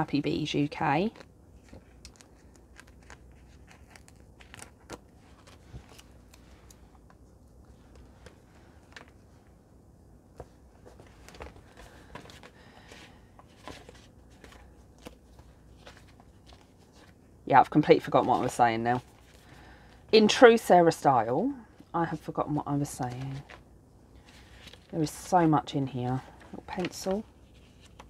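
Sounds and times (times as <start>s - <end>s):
paper rustling and crinkling: 1.0s - 9.6s, 10.3s - 17.2s, 18.0s - 19.6s, 22.8s - 28.0s.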